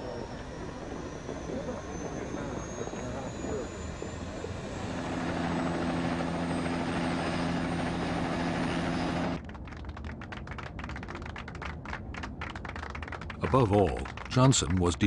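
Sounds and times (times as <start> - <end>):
helicopter turbine and rotor: 0.0 - 11.4, 12.2 - 15.0
people clapping: 9.4 - 15.0.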